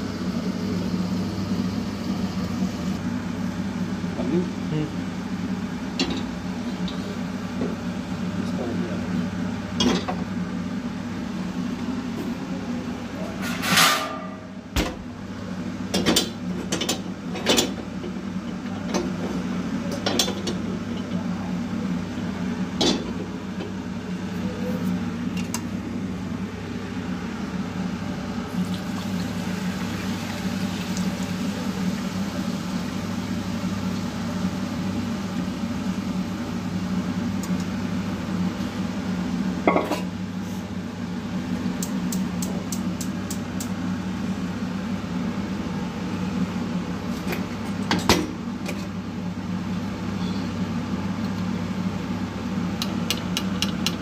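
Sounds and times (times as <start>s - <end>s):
chicken deep-frying in oil: 26.6s - 46.6s.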